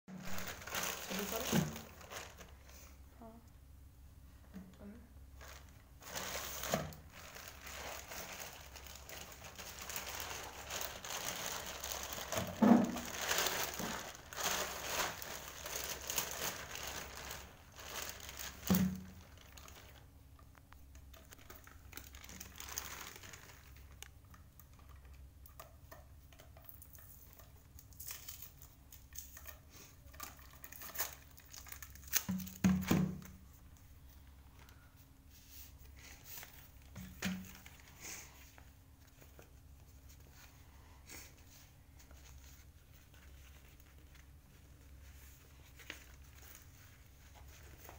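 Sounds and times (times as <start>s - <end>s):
plastic bag crinkling and tearing: 0.1s - 2.8s, 5.4s - 20.2s, 20.9s - 25.0s, 30.2s - 33.4s, 42.0s - 47.9s.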